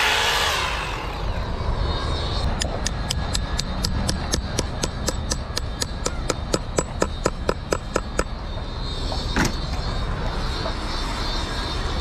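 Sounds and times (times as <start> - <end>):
loud noise: 0.0 - 2.6
steady low rumble: 0.0 - 9.3.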